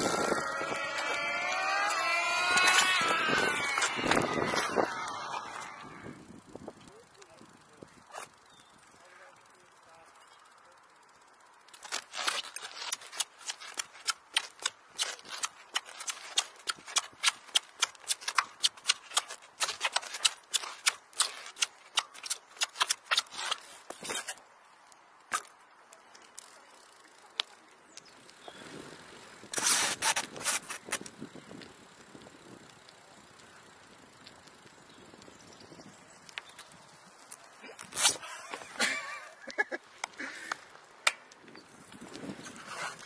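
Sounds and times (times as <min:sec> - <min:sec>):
bike parts clicking: 0:00.0 - 0:28.5, 0:29.2 - 0:43.0.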